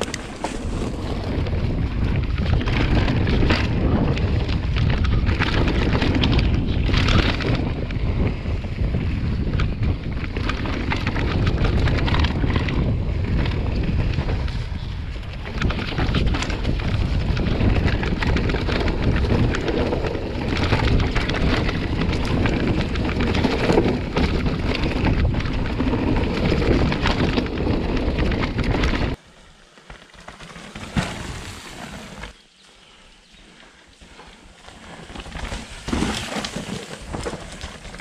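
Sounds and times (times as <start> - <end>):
bike tyres clattering: 0.0 - 8.1
wind rushing on microphone: 0.0 - 29.2.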